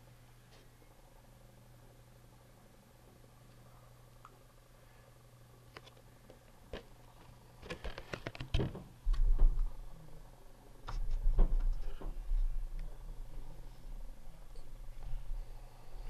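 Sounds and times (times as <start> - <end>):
low handling rumble: 9.0 - 16.0.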